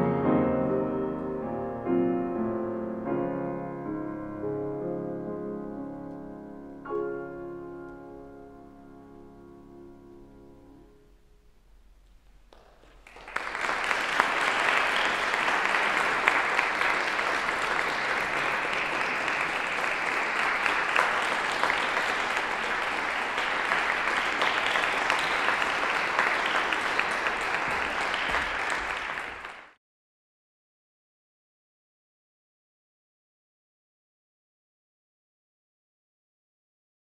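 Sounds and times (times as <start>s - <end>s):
audience applause: 12.5s - 29.8s.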